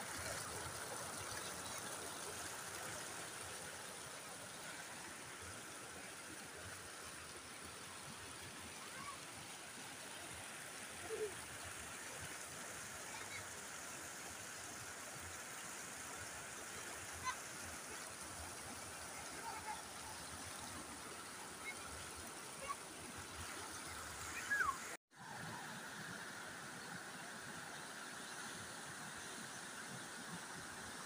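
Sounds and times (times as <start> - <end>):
water rushing over weir: 0.0 - 31.0.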